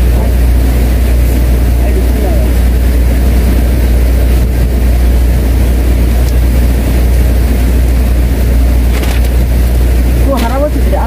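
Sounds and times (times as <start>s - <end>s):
boat engine running: 0.0s - 11.0s.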